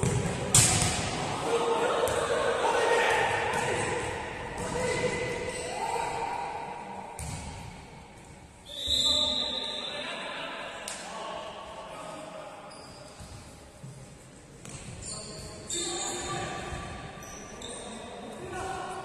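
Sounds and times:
players' voices: 0.0s - 7.6s
referee's whistle blast: 8.6s - 10.0s.

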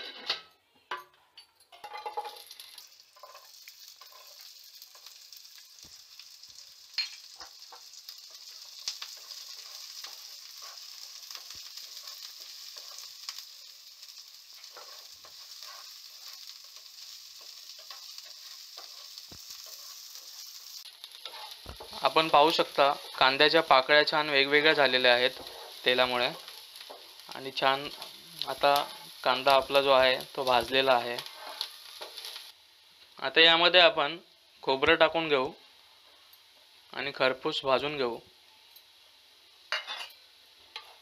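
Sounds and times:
onion sizzling in hot oil: 1.7s - 41.0s
spatula scraping a pan: 3.2s - 5.1s, 7.3s - 13.4s, 14.5s - 23.4s, 24.6s - 29.2s, 31.2s - 32.5s.

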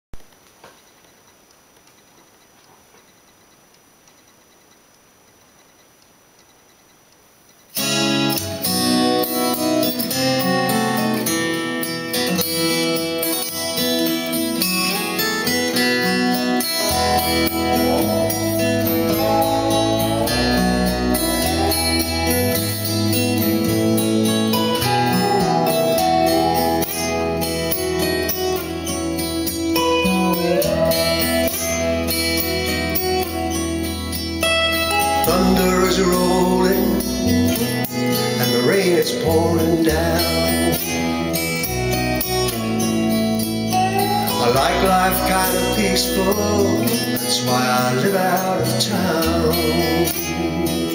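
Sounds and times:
guitar instrumental over loudspeakers: 7.7s - 50.9s
sliding guitar notes: 7.8s - 50.9s
bass line: 16.2s - 50.9s.

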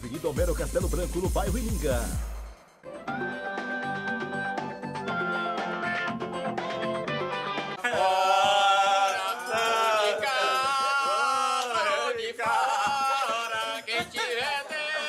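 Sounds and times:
instrumental tune: 0.0s - 7.8s
men singing a folk chant: 7.8s - 15.0s.

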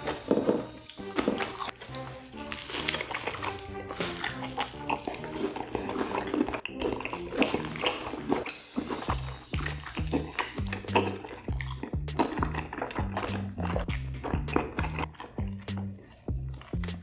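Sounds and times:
background music: 0.0s - 17.0s
biting and chewing: 0.0s - 17.0s.

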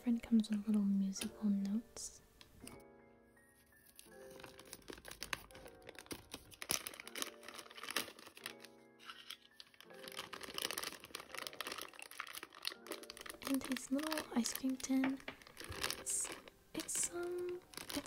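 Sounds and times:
soft background music: 0.0s - 18.0s
packaging rustling and tearing: 3.8s - 18.0s.

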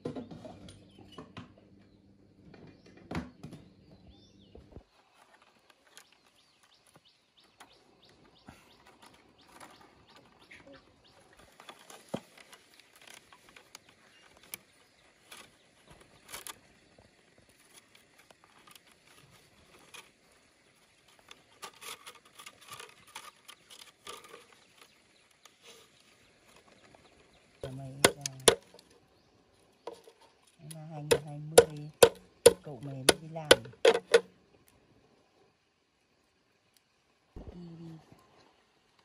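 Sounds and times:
bamboo strips rustling and clicking: 5.0s - 29.0s, 29.8s - 34.3s.

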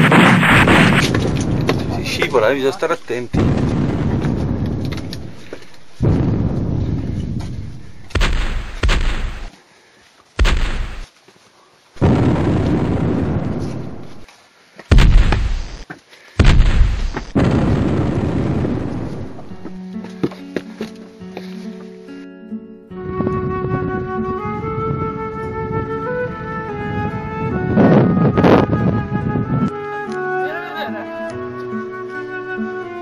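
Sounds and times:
heavy explosion booms: 0.0s - 9.5s, 10.4s - 11.0s, 12.0s - 14.2s, 14.9s - 15.8s, 16.4s - 19.7s.

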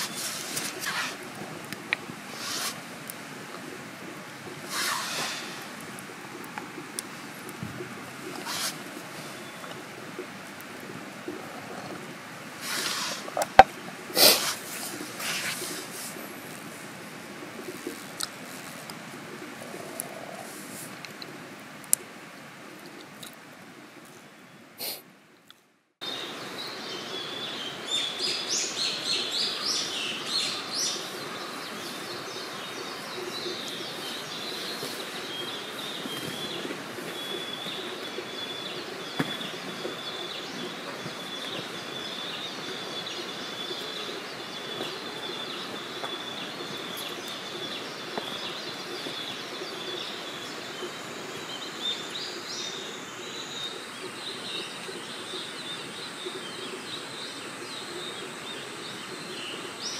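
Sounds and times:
birds calling: 26.0s - 59.9s.

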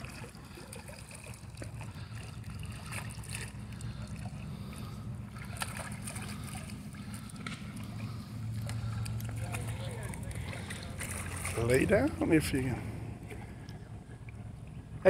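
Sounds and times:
sharp splashes: 0.0s - 12.2s
low steady rumble: 0.0s - 15.0s
water sloshing in a pool: 0.0s - 15.0s.

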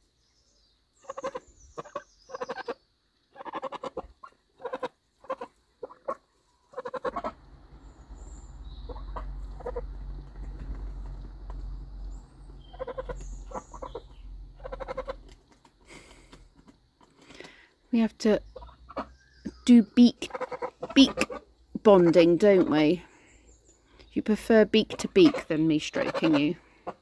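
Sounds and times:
geese honking: 1.1s - 7.5s, 8.6s - 10.0s, 12.6s - 15.3s, 20.2s - 23.0s, 24.8s - 27.0s
steady low rumble: 6.6s - 15.4s.

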